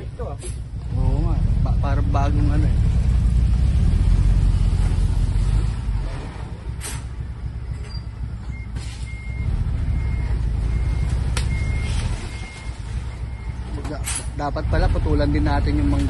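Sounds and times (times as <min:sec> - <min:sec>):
diesel engine running: 0:00.0 - 0:16.0
reversing alarm beeping: 0:07.6 - 0:14.0.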